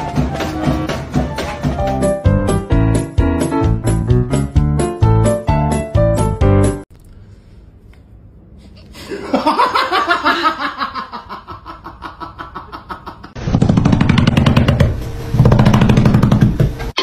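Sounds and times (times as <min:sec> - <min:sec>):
person laughing: 0:09.0 - 0:13.4.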